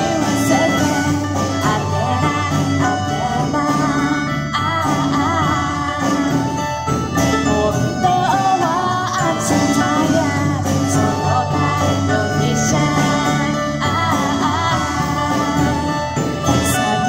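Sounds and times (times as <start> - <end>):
acoustic guitar: 0.0 - 17.0
drums: 0.0 - 17.0
melodica: 0.0 - 17.0
women singing: 0.0 - 17.0.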